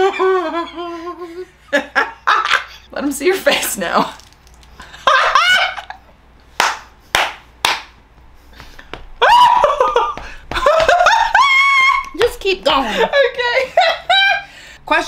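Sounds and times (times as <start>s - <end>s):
woman laughing breathily: 0.0s - 2.9s, 8.8s - 11.9s
woman squealing: 9.2s - 10.2s, 11.0s - 12.2s.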